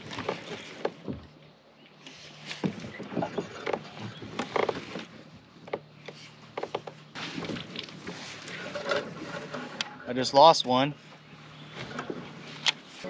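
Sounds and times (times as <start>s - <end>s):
knocks and clicks of fishing gear: 2.5s - 8.2s.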